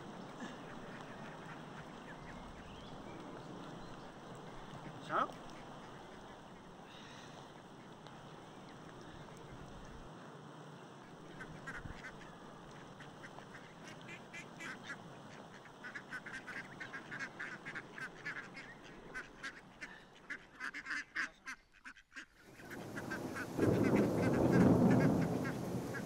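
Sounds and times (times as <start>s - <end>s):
waterfowl honking calls: 0.0s - 2.9s, 11.3s - 26.0s.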